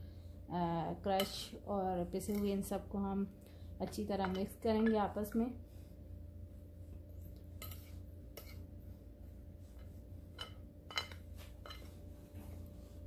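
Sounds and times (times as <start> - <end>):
spoon stirring dry powder: 0.7 - 2.8, 3.8 - 5.4, 6.8 - 13.0
spoon clinking on plate: 10.4 - 12.0.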